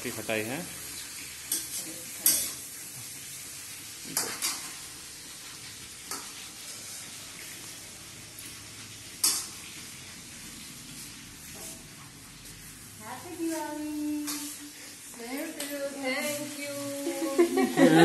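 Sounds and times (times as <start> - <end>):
fruit sizzling in oil: 0.0 - 18.0
metal spatula scraping a pan: 1.4 - 2.8, 11.0 - 12.0, 14.2 - 14.9.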